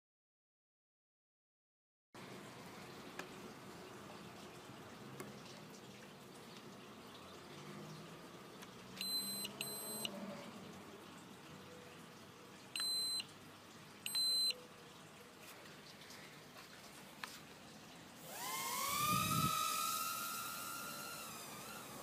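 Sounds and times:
short high beeps: 9.0s - 10.1s, 12.8s - 13.3s, 14.1s - 14.6s.

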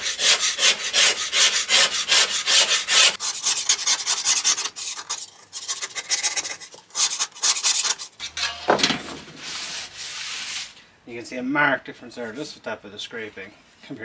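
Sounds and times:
steel scraper rasping on metal: 0.0s - 8.7s.

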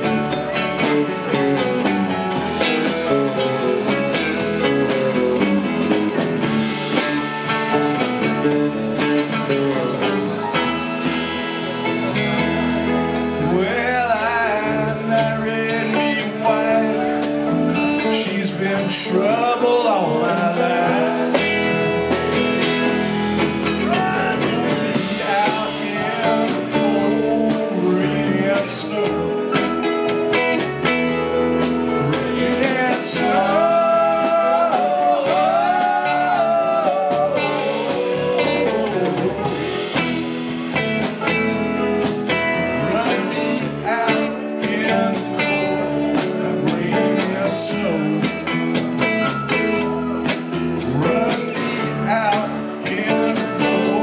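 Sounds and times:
bending electric guitar lead: 0.0s - 54.0s
live rock band playing: 0.0s - 54.0s.

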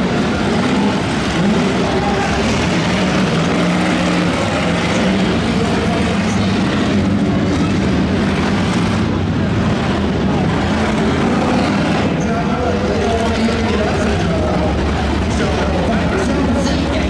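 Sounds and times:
racing car engines: 0.0s - 17.0s.

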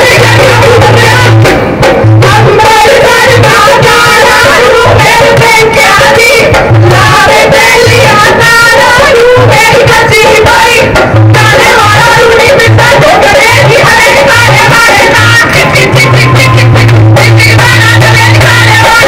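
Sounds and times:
low drum beat: 0.0s - 5.6s, 6.4s - 19.0s
woman singing folk song: 2.3s - 15.5s.

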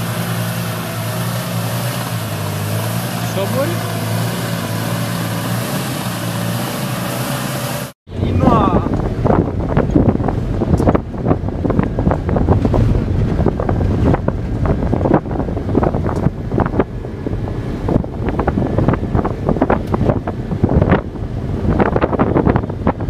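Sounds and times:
engine and tyre rumble: 0.0s - 23.0s
wind buffeting microphone: 8.1s - 23.0s
car knocks and rattles: 8.9s - 23.0s.

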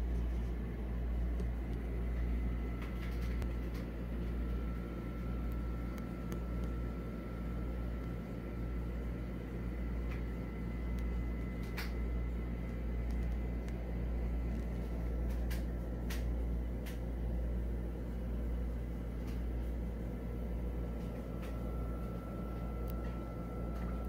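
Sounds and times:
electrical hum: 0.0s - 24.0s
faint high whine: 20.1s - 24.0s.

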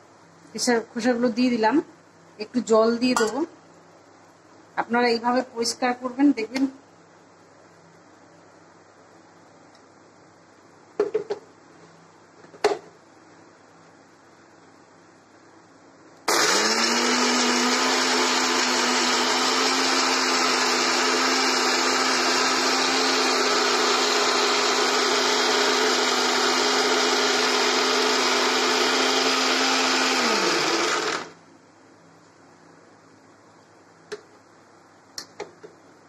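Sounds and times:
mixer grinder motor running: 16.3s - 31.4s.

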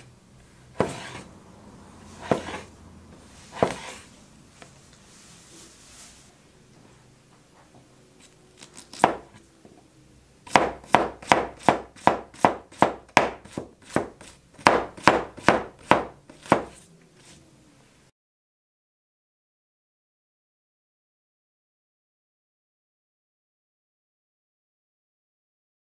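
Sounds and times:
cleaver chopping cucumber: 2.2s - 2.7s, 8.6s - 9.4s, 10.5s - 17.4s.

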